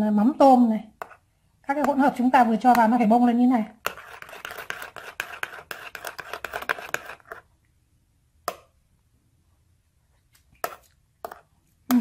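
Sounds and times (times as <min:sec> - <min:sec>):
spoon whisking in ceramic bowl: 0:03.7 - 0:07.5, 0:10.6 - 0:12.0.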